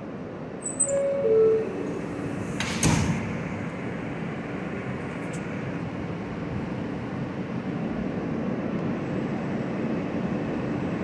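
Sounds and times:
train running noise: 0.0 - 11.0
two-note door chime: 0.6 - 1.9
sliding doors thudding shut: 1.7 - 3.6.

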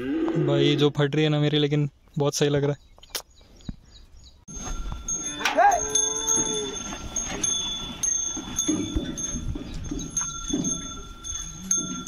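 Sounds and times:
animal bells ringing: 4.5 - 12.0
wooden cart knocking and rumbling: 6.7 - 12.0.

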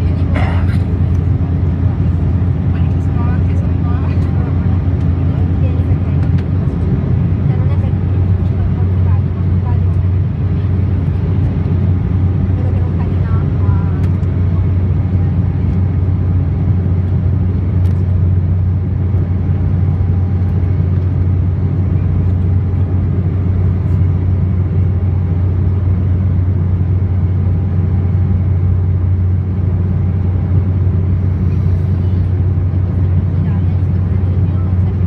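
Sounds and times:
airliner cabin drone: 0.0 - 35.0.

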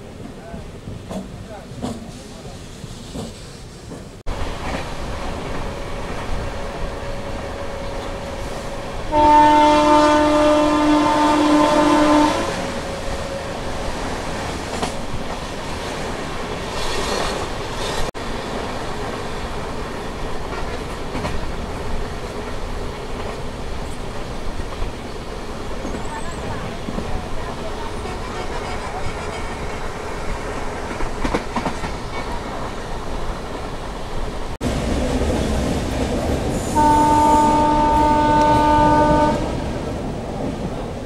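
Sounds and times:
train rumble: 0.0 - 41.0
train horn: 9.1 - 12.9, 36.7 - 39.8.

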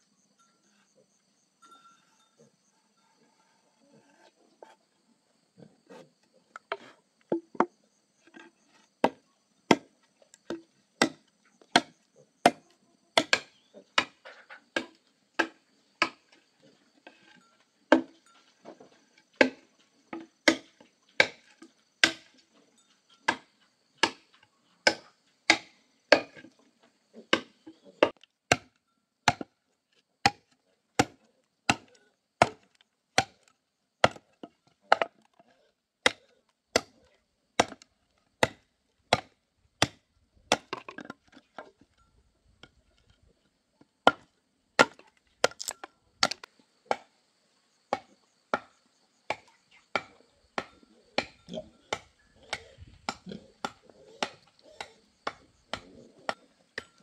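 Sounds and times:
wood being chopped: 9.0 - 9.9, 10.5 - 12.6, 13.2 - 14.2, 14.8 - 16.3, 17.9 - 18.1, 19.4 - 22.4, 23.3 - 26.4, 27.3 - 28.7, 29.3 - 29.5, 30.2 - 33.4, 34.0 - 34.3, 34.9 - 35.2, 36.0 - 37.0, 37.6 - 41.1, 44.0 - 47.1, 47.9 - 48.7, 49.3 - 57.0.

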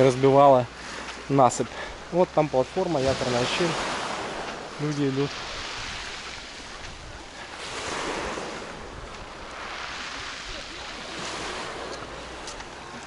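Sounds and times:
sea surf washing in: 2.0 - 13.0
wind rumble on microphone: 3.0 - 13.0.

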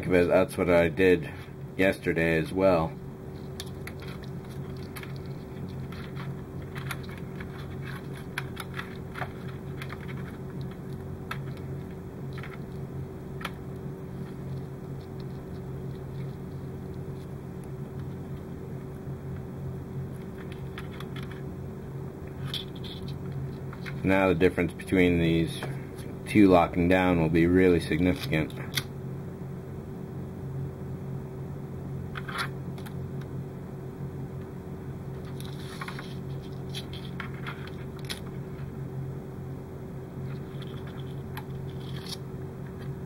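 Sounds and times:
steady low hum: 0.0 - 43.0
wires rustling and clicking: 3.3 - 19.5, 20.1 - 21.5, 22.2 - 24.2, 35.1 - 38.8, 40.2 - 43.0.

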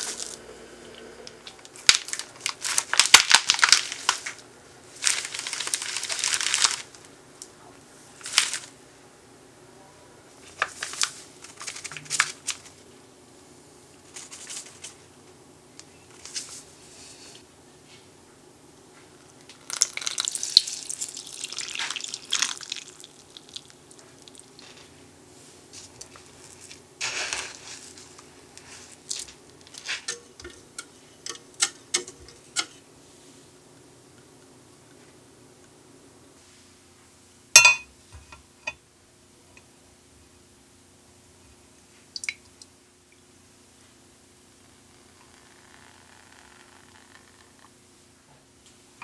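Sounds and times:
packets rustling and crinkling: 0.0 - 0.4, 1.4 - 7.1, 8.2 - 8.7, 10.4 - 12.8, 25.8 - 29.9
flour pouring into glass bowl: 19.7 - 23.7, 45.1 - 47.6.

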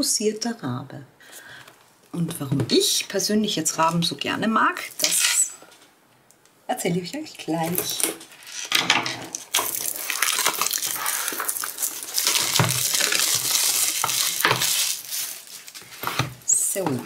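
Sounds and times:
plastic shrink-wrap crinkling: 7.8 - 17.0
scissors cutting plastic: 9.3 - 16.9.

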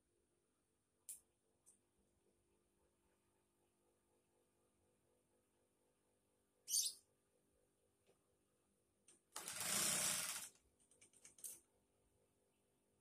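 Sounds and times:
sewing machine stitching: 9.3 - 10.6.

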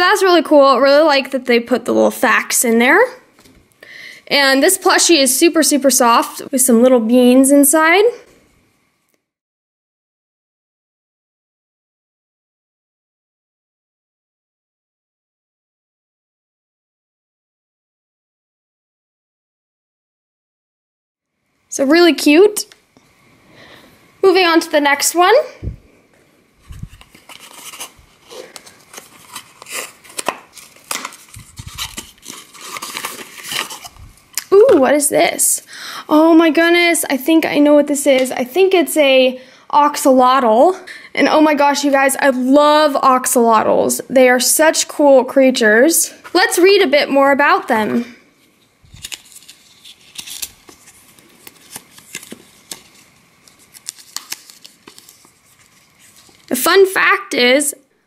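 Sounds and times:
paper rustling and clicking: 26.7 - 33.9, 48.9 - 56.5
cardboard box torn open: 28.5 - 34.0, 49.0 - 52.7.

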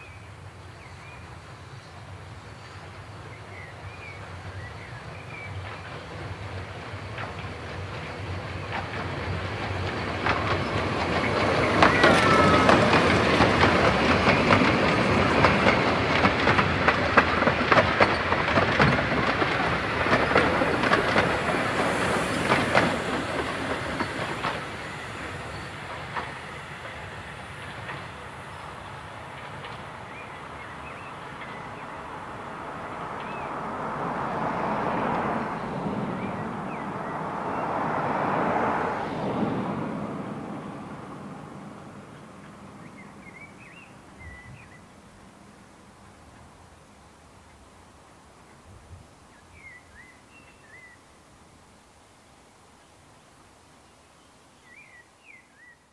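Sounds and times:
train wheels clicking over rail joints: 4.8 - 37.2
wheel squeal: 11.3 - 13.4.

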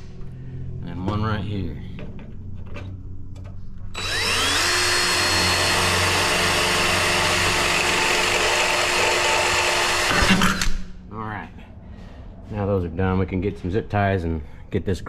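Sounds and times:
power drill whining: 3.9 - 10.7.

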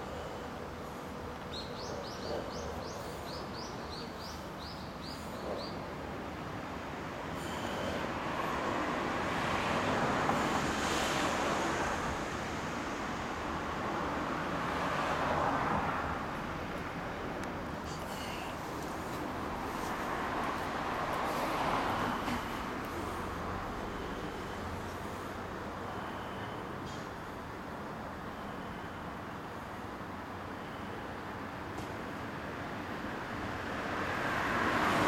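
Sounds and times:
vehicle passing: 7.4 - 25.8, 33.4 - 35.0.

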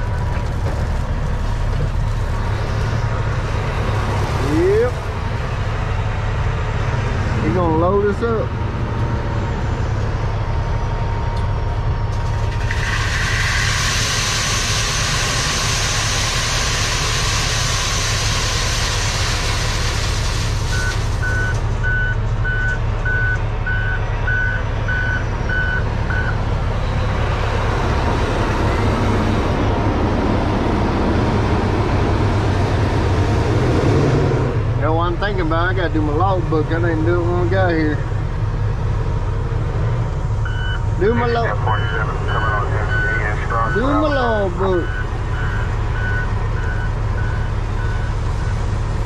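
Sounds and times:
diesel engine idling: 0.0 - 49.0
backup alarm beeping: 20.7 - 26.4, 40.4 - 48.2.

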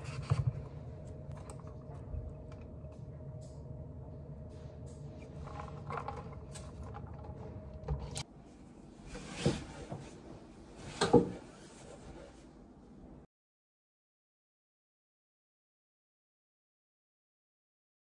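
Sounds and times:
low room hum: 0.0 - 13.3.

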